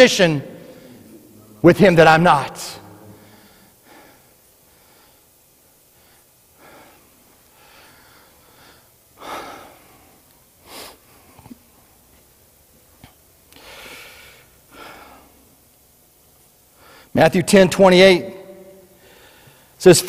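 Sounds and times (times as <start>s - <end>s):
man breathing: 0.5s - 1.4s, 3.0s - 11.6s, 13.5s - 15.5s, 16.7s - 17.1s, 18.9s - 19.8s.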